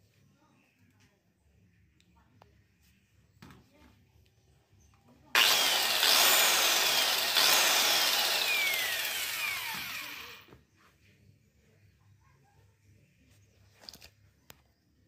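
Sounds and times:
angle grinder whining: 5.4s - 10.5s.

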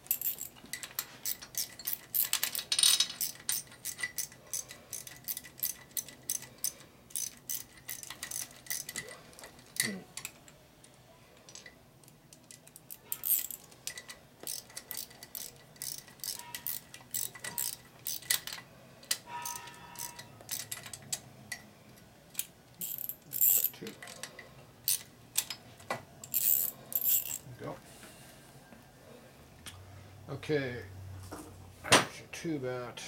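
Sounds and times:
ratchet wrench clicking: 0.1s - 10.4s, 12.4s - 21.6s, 22.4s - 25.6s, 26.2s - 27.4s.

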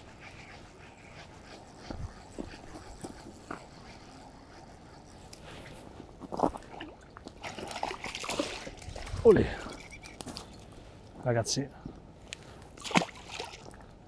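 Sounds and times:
fish splashing in water: 6.8s - 9.1s, 12.8s - 13.8s.

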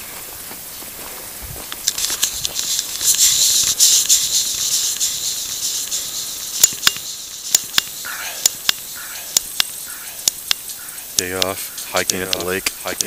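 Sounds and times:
gravel crunching and rattling: 0.0s - 8.1s
sharp clicks: 1.7s - 13.0s.

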